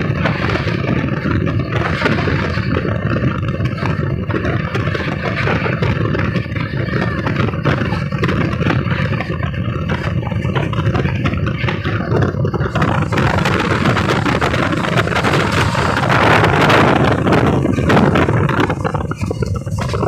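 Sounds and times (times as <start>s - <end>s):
freight train rattling past: 0.0s - 20.0s
wind rush and train running noise: 0.0s - 20.0s.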